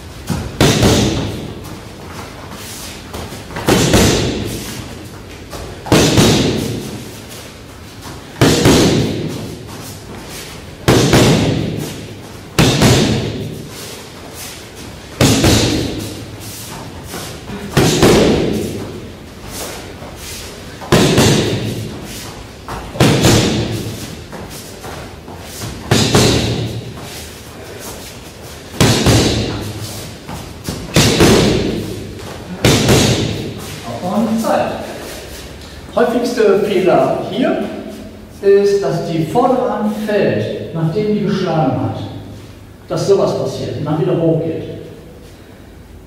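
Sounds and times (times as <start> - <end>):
boxing gloves slapping mitts: 0.2 - 13.9, 14.5 - 20.1, 20.7 - 33.9.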